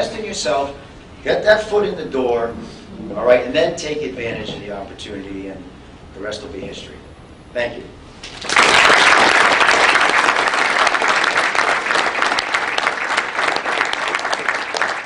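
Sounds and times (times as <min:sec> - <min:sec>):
audience applauding: 0:08.2 - 0:15.0.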